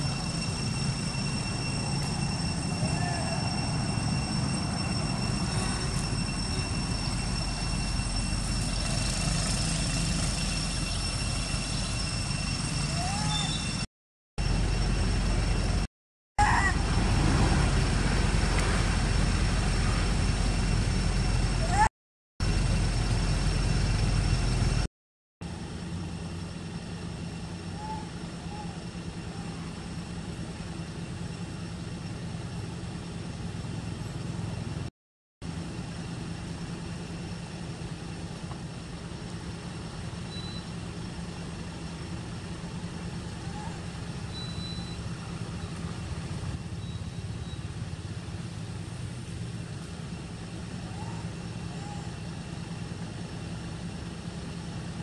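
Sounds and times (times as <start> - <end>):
faint rising chirps: 0.0 - 15.9, 40.2 - 42.3, 43.2 - 47.9
low outdoor drone: 0.0 - 55.0.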